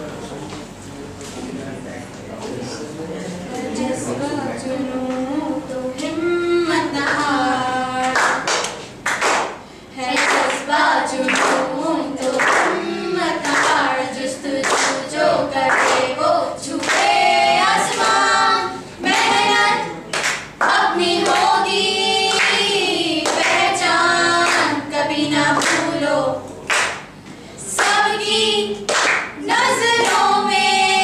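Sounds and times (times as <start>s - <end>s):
young women singing together: 3.5s - 31.0s
hands clapping in time: 8.0s - 9.6s, 11.2s - 12.8s, 15.7s - 16.1s, 20.1s - 21.5s, 26.6s - 28.0s, 28.8s - 29.4s.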